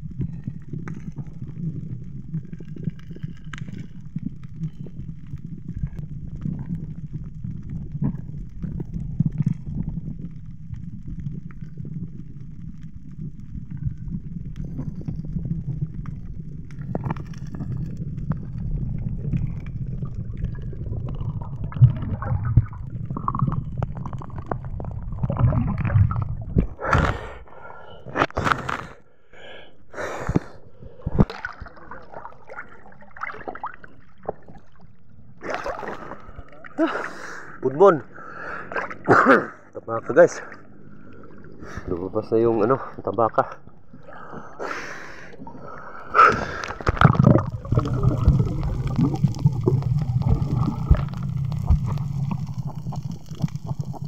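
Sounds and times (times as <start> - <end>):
muffled underwater rumble: 0.0 - 29.3, 30.0 - 54.0
person breathing: 26.8 - 31.3, 36.8 - 38.8, 44.0 - 46.8
sharp water splashes: 35.4 - 36.2.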